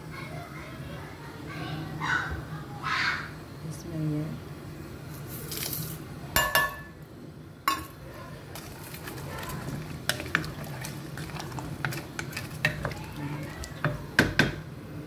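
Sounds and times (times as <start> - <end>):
steel bowl clinking on pot: 6.4 - 6.9, 7.7 - 14.5
spoon stirring in metal pot: 7.7 - 14.6.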